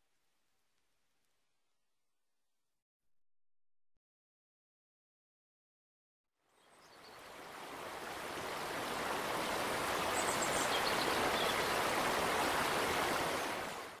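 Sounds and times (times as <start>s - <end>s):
running water rushing: 6.7s - 14.0s.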